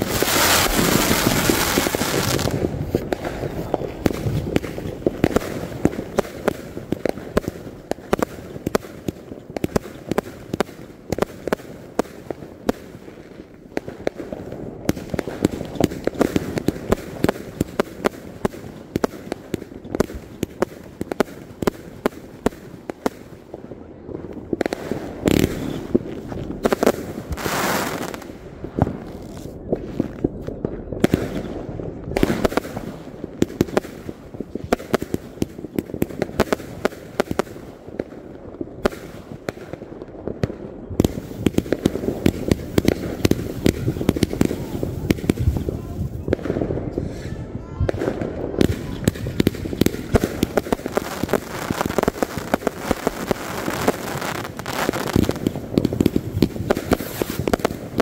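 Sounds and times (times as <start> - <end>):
firework hiss: 0.0 - 7.4, 48.6 - 58.0
fireworks popping and crackling: 0.0 - 58.0.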